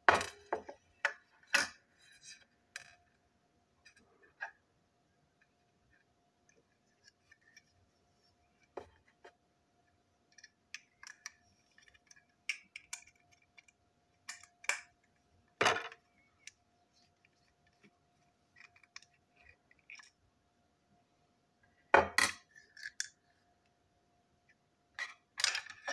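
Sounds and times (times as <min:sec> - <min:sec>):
faint steady hum: 0:00.0 - 0:25.9
small plastic parts clicking on table: 0:10.3 - 0:15.1.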